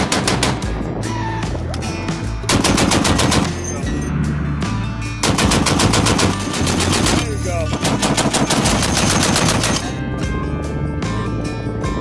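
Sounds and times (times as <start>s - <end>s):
heavy machine gun firing bursts: 0.0s - 0.6s, 2.5s - 3.6s, 5.2s - 9.9s.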